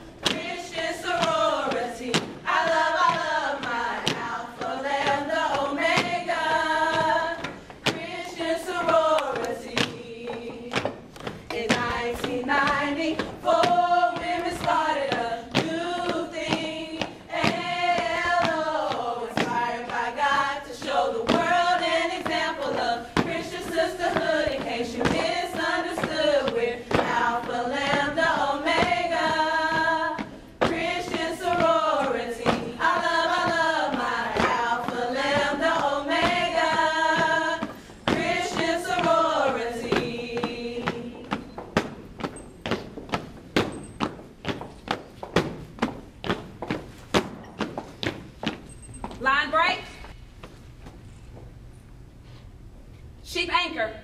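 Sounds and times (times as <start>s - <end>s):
group of voices singing: 0.0s - 42.0s
rhythmic thumps: 0.0s - 48.7s.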